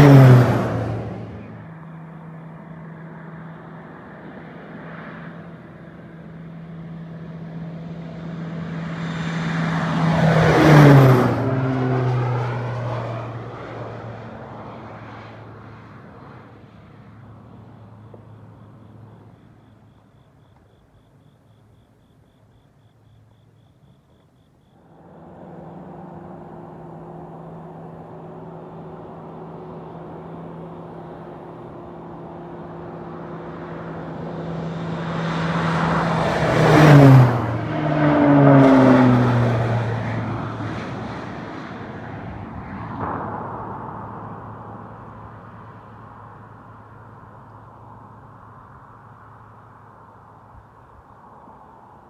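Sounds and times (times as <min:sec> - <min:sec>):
airplane engine drone: 0:00.0 - 0:52.0.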